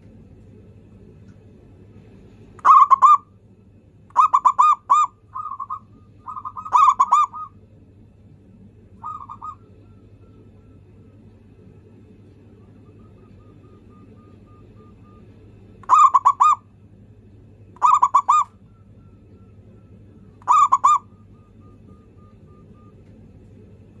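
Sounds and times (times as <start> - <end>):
dove cooing: 2.6 - 3.3, 4.1 - 7.6, 8.9 - 11.4, 12.2 - 16.7, 17.8 - 23.9.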